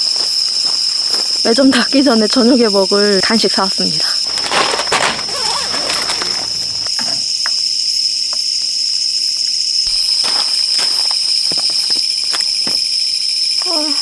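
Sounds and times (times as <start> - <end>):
crickets trilling: 0.0 - 14.0
camping gear tapping: 4.2 - 6.9
tent fabric rustling: 4.2 - 6.9.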